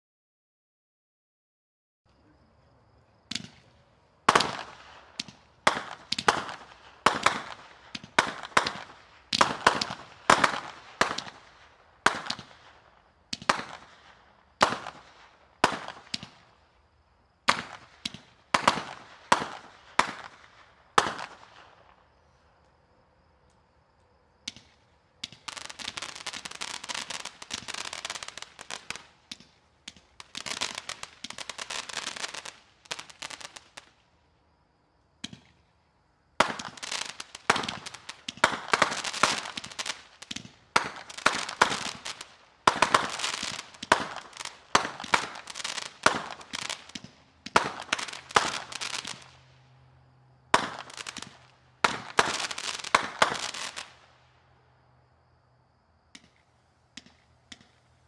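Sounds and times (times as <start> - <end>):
fireworks cake firing: 3.3 - 16.7, 17.4 - 22.2, 24.4 - 34.1, 36.4 - 49.6, 50.5 - 54.1.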